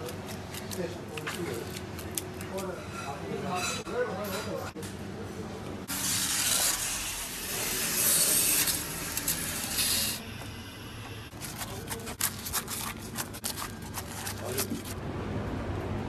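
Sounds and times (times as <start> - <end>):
knife crunching through flatbread: 11.3 - 15.0.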